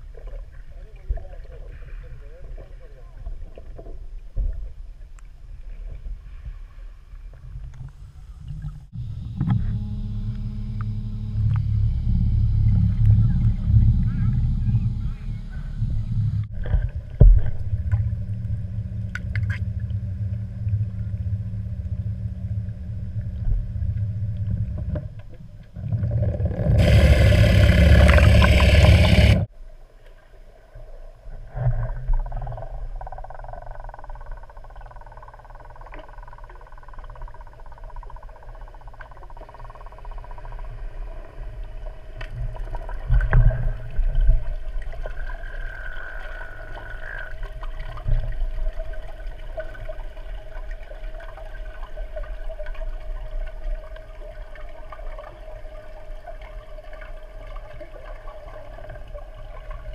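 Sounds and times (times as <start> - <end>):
water gurgling: 8.4 - 29.5, 31.5 - 59.9
boat motor humming underwater: 8.6 - 29.5, 31.4 - 59.9
rush of water: 25.9 - 29.5.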